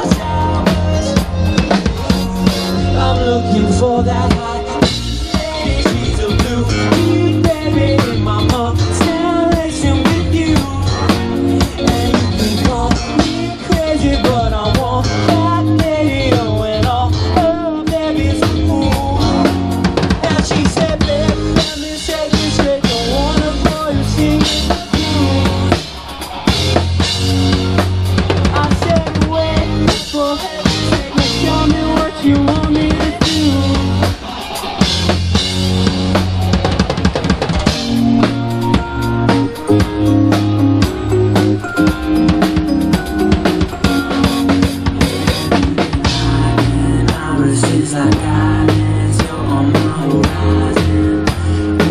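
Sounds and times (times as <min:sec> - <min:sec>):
bass drum and snare beat: 0:00.0 - 0:03.1, 0:04.1 - 0:51.9
live rock band playing: 0:00.0 - 0:51.9
wavering melodic line: 0:37.6 - 0:46.8.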